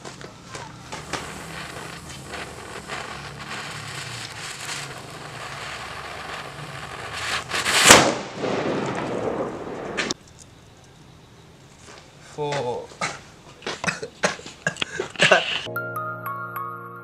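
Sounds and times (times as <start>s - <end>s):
firecracker powder crackling hiss: 0.0s - 10.2s, 12.3s - 15.7s
rushing hiss: 0.2s - 10.2s
loud bang: 4.3s - 10.2s.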